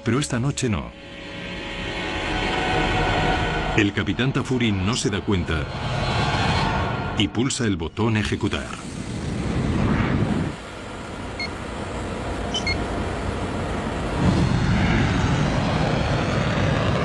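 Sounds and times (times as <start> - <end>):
jet engine and airflow rush: 0.0 - 17.0
short electronic beeps: 12.5 - 12.8.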